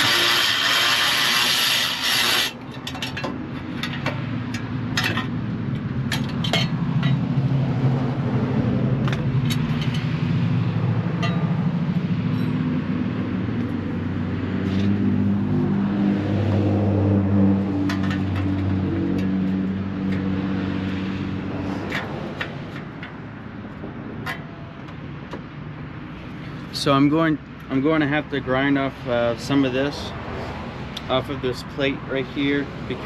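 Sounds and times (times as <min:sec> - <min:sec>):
engine humming: 0:00.0 - 0:26.8.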